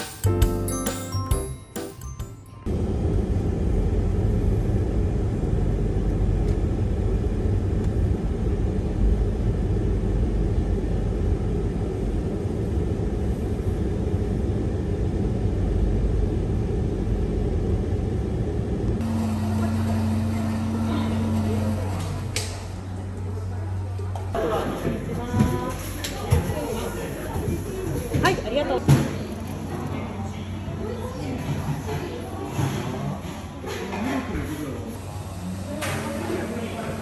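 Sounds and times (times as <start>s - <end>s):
steady low hum: 2.6s - 26.0s
road traffic rumble: 2.7s - 37.0s.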